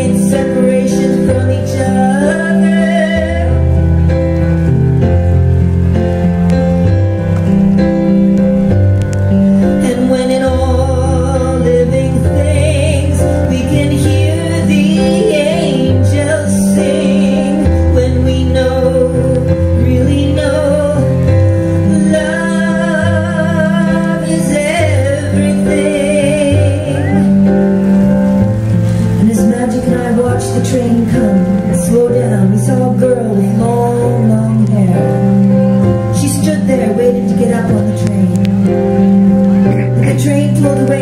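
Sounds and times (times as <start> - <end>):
woman singing with vibrato: 0.0 - 3.8, 9.6 - 28.0, 29.1 - 35.4, 36.0 - 38.7, 39.8 - 41.0
piano chords: 0.0 - 41.0.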